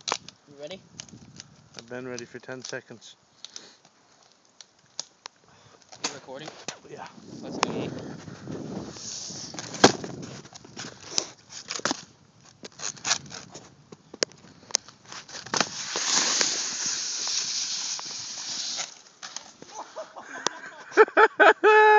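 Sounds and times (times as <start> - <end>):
snowboard clicks and knocks: 5.8 - 19.8
snowboard hissing over snow: 7.2 - 9.8, 15.6 - 19.0.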